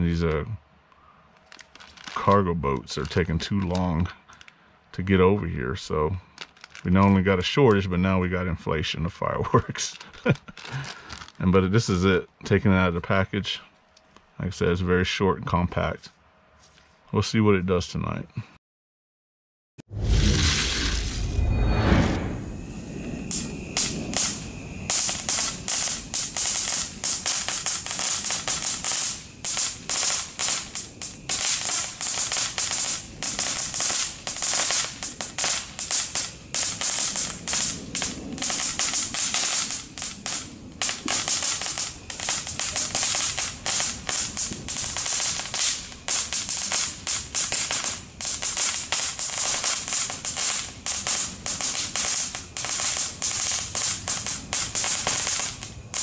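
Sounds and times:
firework crackling and popping: 1.4 - 5.1, 5.8 - 7.9, 9.1 - 11.5, 19.9 - 56.0.

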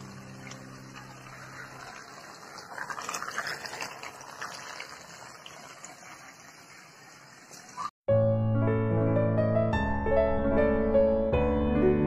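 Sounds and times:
water splashing and churning: 0.0 - 7.9.

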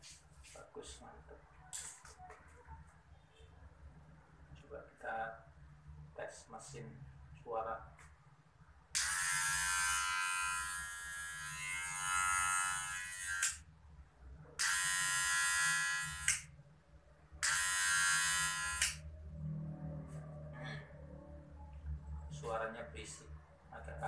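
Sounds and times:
hair clipper buzzing: 9.0 - 13.6, 14.6 - 16.5, 17.4 - 19.0.

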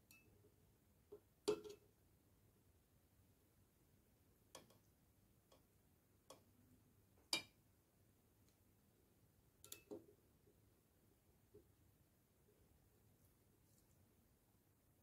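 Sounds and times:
knife tapping steel pot: 7.3 - 7.6.

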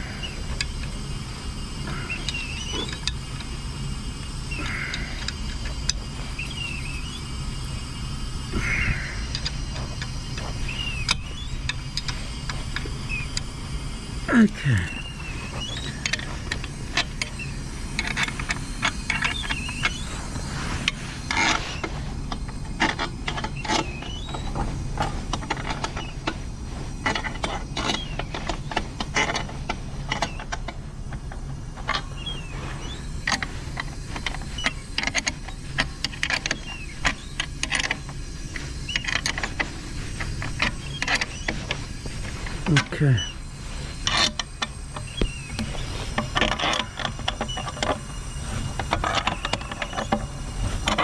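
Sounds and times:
steady low hum: 0.0 - 51.0
hand tools scraping: 4.4 - 13.5, 14.3 - 51.0
metal clicks of hand tools: 33.2 - 38.2.

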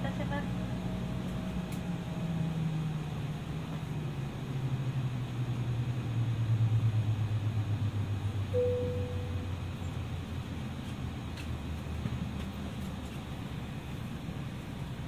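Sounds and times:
jet engines winding down: 0.0 - 15.0
soft cabin chime: 8.5 - 9.8.

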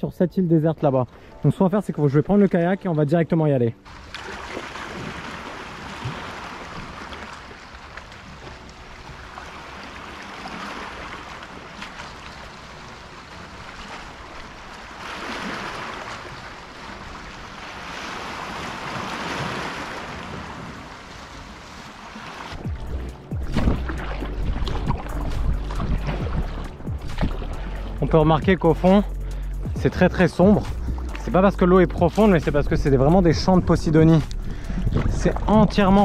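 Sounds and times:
waves washing against rocky shore: 3.9 - 8.0, 9.4 - 22.7.

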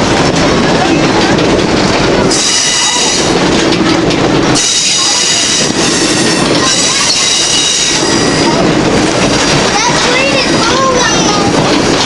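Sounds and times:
train car rumbling on track: 0.0 - 12.0
train wheels squealing on rail: 2.3 - 3.4, 4.6 - 8.7.

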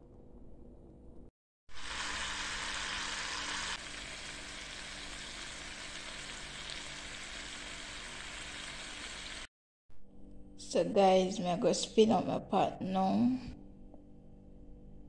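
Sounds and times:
meat sizzling in a frying pan: 1.7 - 9.5.

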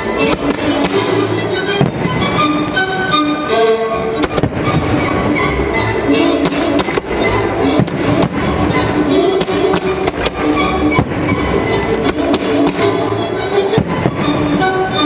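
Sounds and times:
music playing: 0.0 - 15.0
fireworks bangs and cracks: 1.8 - 3.2, 4.2 - 5.3, 6.4 - 7.2, 7.8 - 12.9, 13.7 - 15.0.

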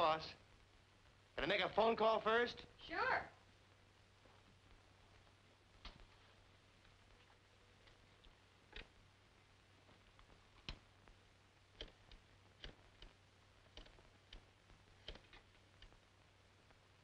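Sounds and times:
old film soundtrack hum: 0.0 - 17.0
faint clicks and pops: 4.2 - 6.1, 9.8 - 16.9.

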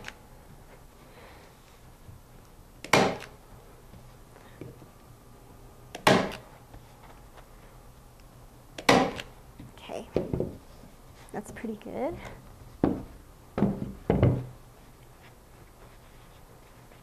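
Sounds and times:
staple gun firing: 2.8 - 3.3.

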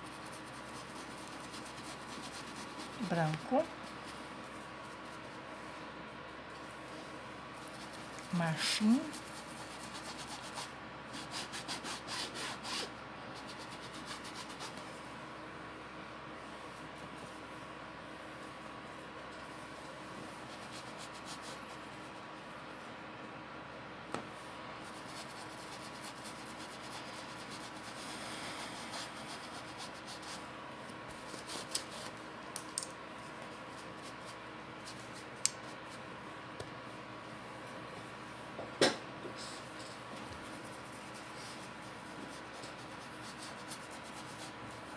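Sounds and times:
paintbrush scrubbing on fabric: 0.0 - 5.7, 6.7 - 14.8, 24.8 - 30.5, 40.4 - 44.9.

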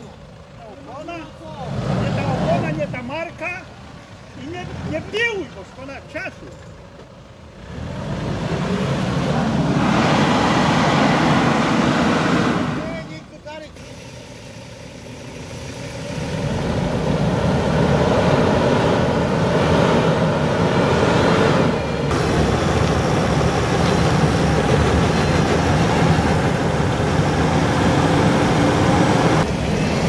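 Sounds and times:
engine running hard under load: 7.2 - 30.0
tyres spinning in mud: 22.0 - 30.0.

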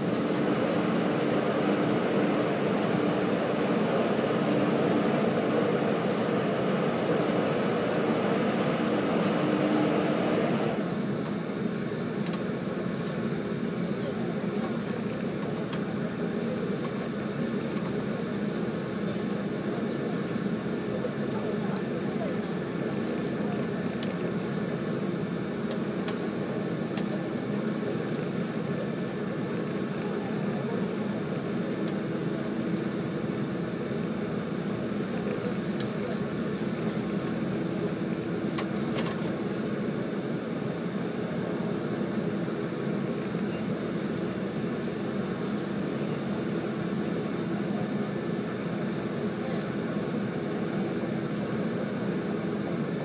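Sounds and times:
train wheels rumbling on rail: 0.0 - 11.5.

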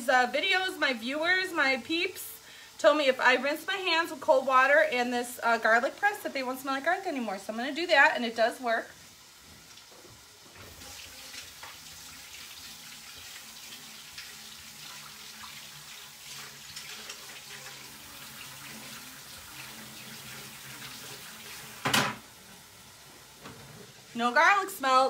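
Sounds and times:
tap running into sink: 21.7 - 22.3.

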